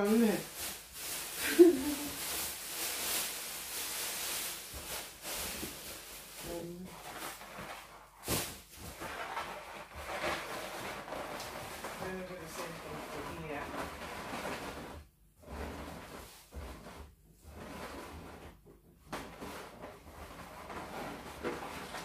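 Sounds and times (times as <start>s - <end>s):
balloons rubbing and squeaking: 0.0s - 22.0s.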